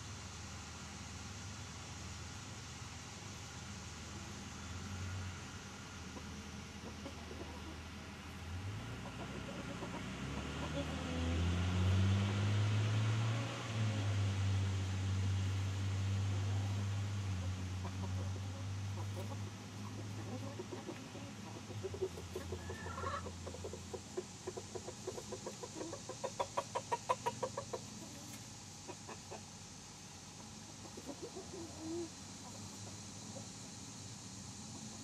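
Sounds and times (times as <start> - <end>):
low steady hum: 0.0 - 35.0
bird clucking: 6.1 - 8.0, 9.0 - 11.2, 17.8 - 33.7.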